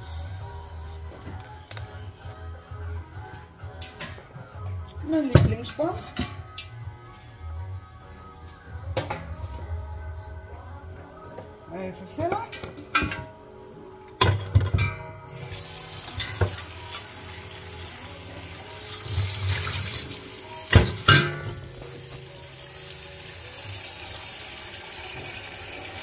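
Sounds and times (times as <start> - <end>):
tap water filling metal pot: 15.5 - 17.5, 18.6 - 26.0
metal pot clunking: 20.7 - 21.8.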